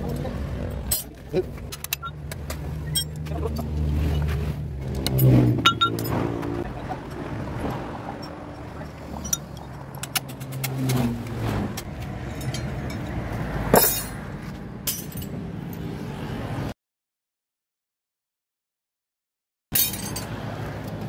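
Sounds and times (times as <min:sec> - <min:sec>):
road traffic rumble: 0:00.0 - 0:16.8, 0:19.7 - 0:21.0
metal tools clinking: 0:00.9 - 0:02.2, 0:02.8 - 0:04.3, 0:04.9 - 0:06.3, 0:09.2 - 0:10.6, 0:12.2 - 0:13.2, 0:13.8 - 0:14.2, 0:14.8 - 0:15.4, 0:19.8 - 0:20.3
sharp metallic clank: 0:13.7 - 0:14.2.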